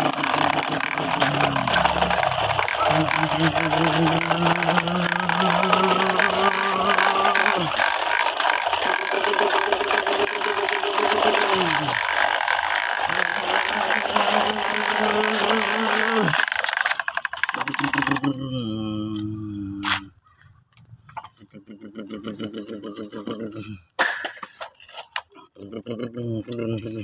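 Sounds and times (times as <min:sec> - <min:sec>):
low hum dropping in pitch: 0:00.0 - 0:16.4
toy truck wheels rattling on concrete: 0:00.0 - 0:18.5, 0:22.9 - 0:25.4.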